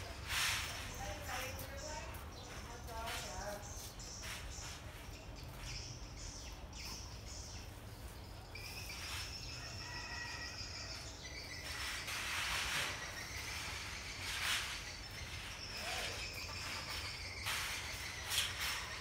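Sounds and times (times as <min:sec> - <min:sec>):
birds chirping: 0:00.0 - 0:19.0
insects calling: 0:08.6 - 0:19.0.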